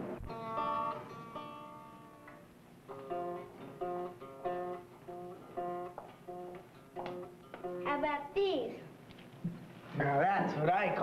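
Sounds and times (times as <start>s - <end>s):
guitar chord ringing: 0.0s - 8.0s
plucked guitar chords: 0.0s - 8.4s.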